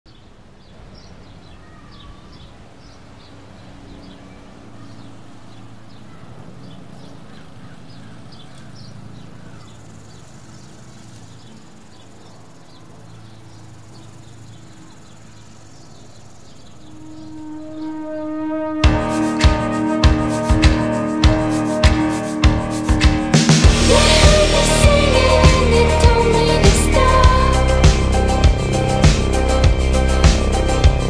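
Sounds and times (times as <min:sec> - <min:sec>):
steady low rumble: 0:18.8 - 0:31.0.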